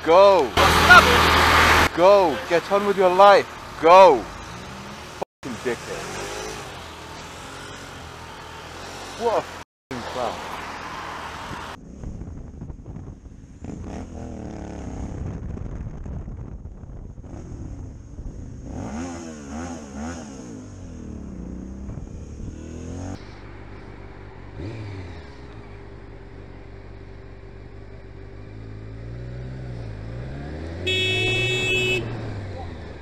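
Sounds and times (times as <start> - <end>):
motorcycle engine revving: 0.3 - 9.7, 10.8 - 33.0
motorcycle engine running steadily: 11.8 - 30.0, 30.8 - 33.0.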